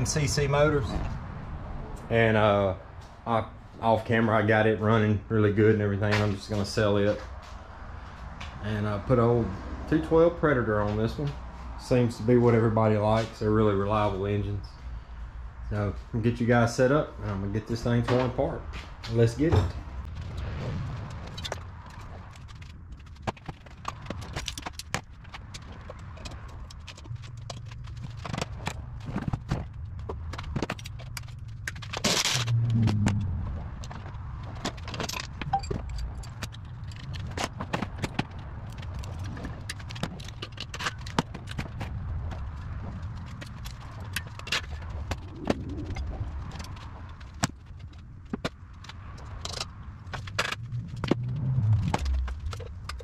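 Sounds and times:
metal tools clinking and scraping: 34.7s - 37.5s.

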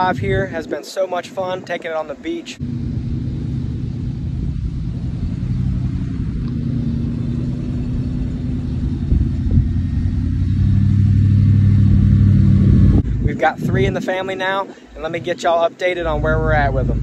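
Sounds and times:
truck engine rumbling: 2.1s - 17.0s
low thumps: 2.6s - 13.9s.

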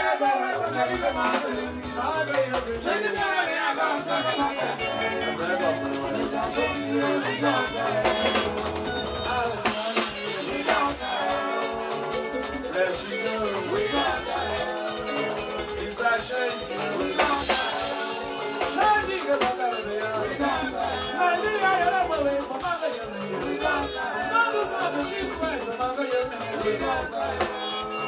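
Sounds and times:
band music: 0.0s - 28.0s
drum kit and hand percussion: 0.0s - 28.0s.

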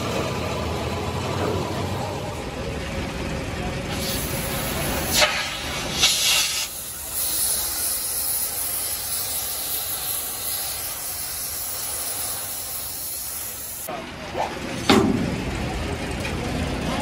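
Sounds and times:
gas cutting torch hissing: 3.9s - 13.9s.

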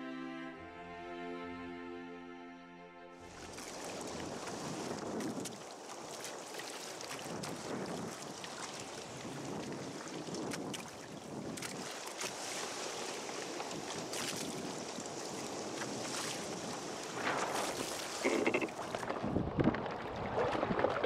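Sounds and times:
water splashing along hull: 3.2s - 21.0s
wind buffeting microphone: 4.0s - 5.6s, 7.2s - 12.0s, 18.4s - 21.0s.

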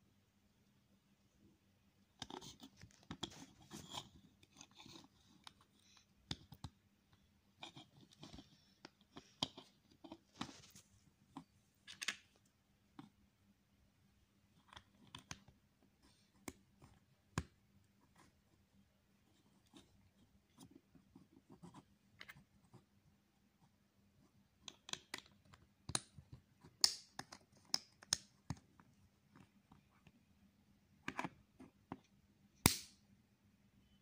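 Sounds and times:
plastic bricks clicking and snapping: 24.6s - 28.7s.

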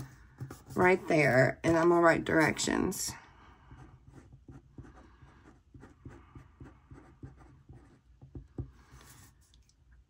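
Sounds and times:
pen writing on paper: 0.0s - 1.9s, 3.8s - 9.3s.

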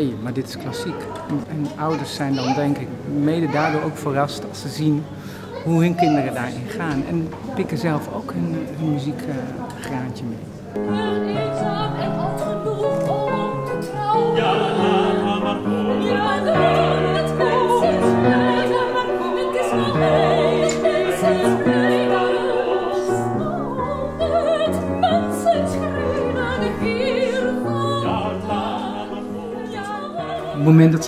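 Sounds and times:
operatic singing with vibrato: 10.8s - 31.0s.

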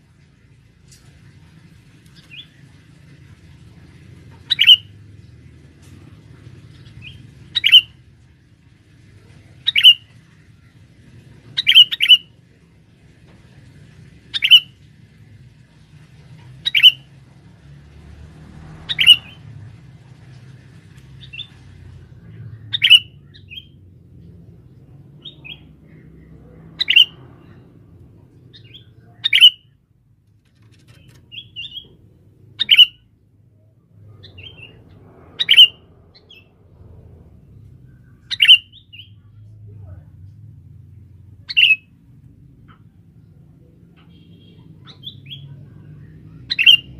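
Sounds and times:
faint bird chirps: 4.4s - 5.0s, 9.3s - 10.7s.

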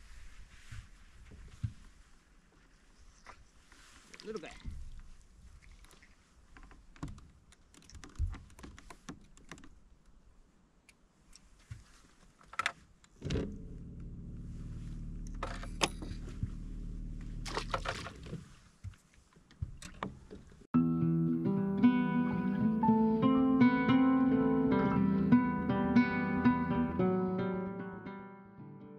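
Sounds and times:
low motor hum: 13.3s - 18.3s.

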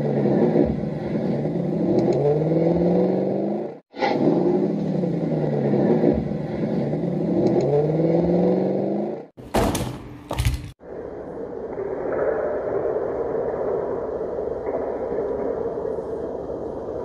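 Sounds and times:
engine revving up and down: 0.0s - 9.4s.

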